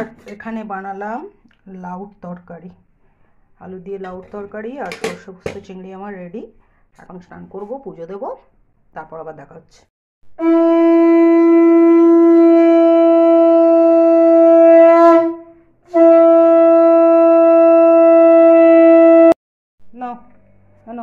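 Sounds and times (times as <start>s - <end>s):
conch shell blasts: 10.4s - 19.3s.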